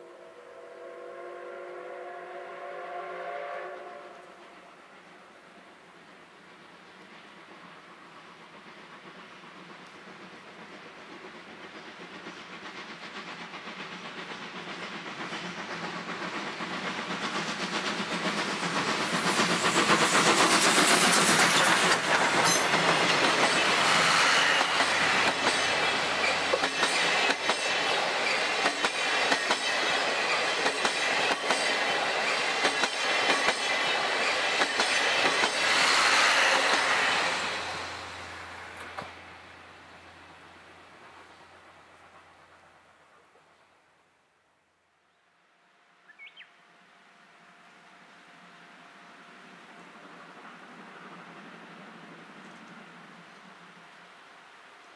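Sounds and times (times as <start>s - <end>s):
steam locomotive exhaust beats: 0.0s - 44.2s
clickety-clack of train wheels: 6.8s - 39.6s.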